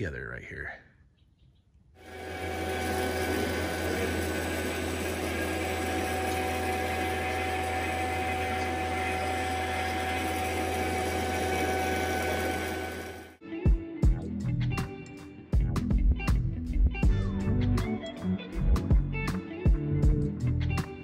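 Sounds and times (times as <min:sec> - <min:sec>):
vacuum pump droning: 0:02.0 - 0:13.4.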